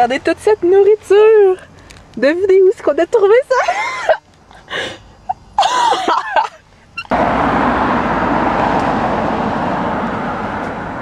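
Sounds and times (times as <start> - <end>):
car driving on highway: 7.0 - 11.0.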